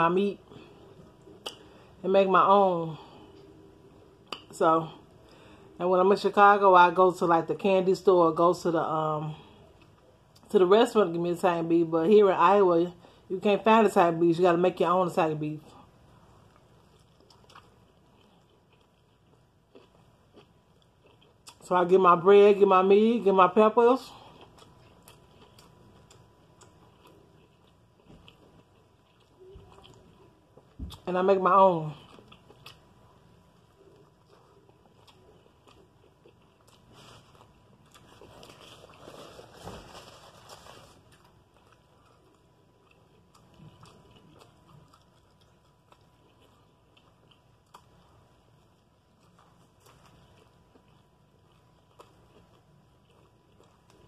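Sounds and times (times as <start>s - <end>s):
chewing sandwich: 16.3s - 21.7s, 24.2s - 31.0s, 32.0s - 54.0s.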